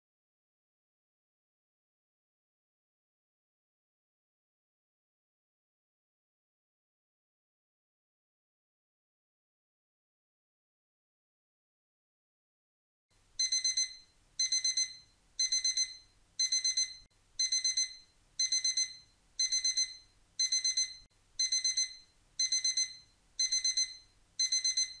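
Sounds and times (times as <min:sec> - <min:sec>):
digital alarm beeping: 0:13.4 - 0:25.0.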